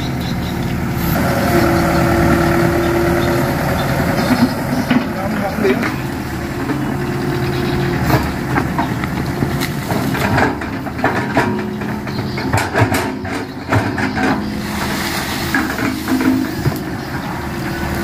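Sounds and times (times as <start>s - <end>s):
excavator diesel engine running: 0.0s - 18.0s
sharp knocks and clanks: 7.8s - 14.6s.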